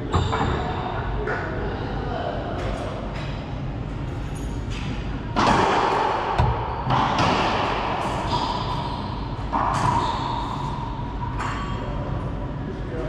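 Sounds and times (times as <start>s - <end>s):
racquetball hits echoing: 5.4s - 11.6s.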